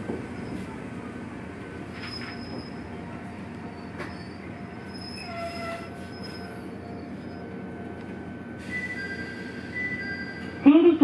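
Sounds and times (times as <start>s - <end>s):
train running rumble: 0.0s - 10.9s
wheels squealing on rail: 0.3s - 0.8s, 1.9s - 7.7s, 8.6s - 10.6s.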